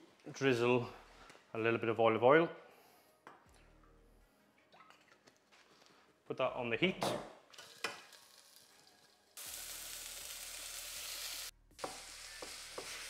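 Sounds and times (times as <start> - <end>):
leek sizzling in oil: 7.7 - 13.0.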